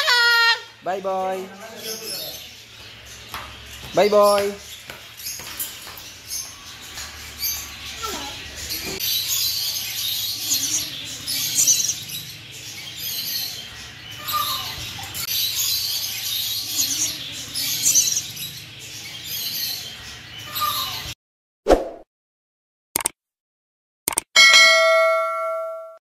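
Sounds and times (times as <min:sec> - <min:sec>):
cockatoo chirping and chattering: 0:00.0 - 0:00.9, 0:07.3 - 0:21.2.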